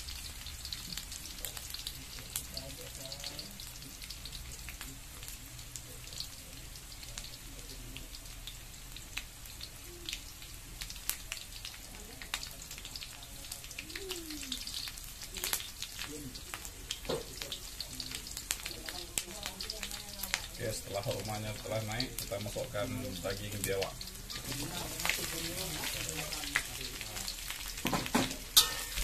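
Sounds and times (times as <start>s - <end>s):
food sizzling in a wok: 0.0s - 29.0s
spatula stirring: 23.5s - 29.0s.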